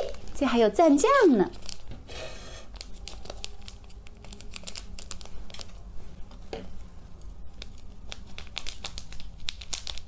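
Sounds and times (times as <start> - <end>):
sachet crinkling and tearing: 0.0 - 2.0, 2.7 - 5.9, 7.2 - 10.0.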